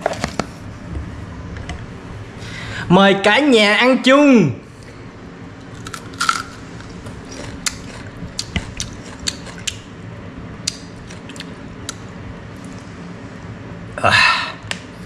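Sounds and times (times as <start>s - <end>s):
crunchy chewing of fruit: 5.6s - 9.9s.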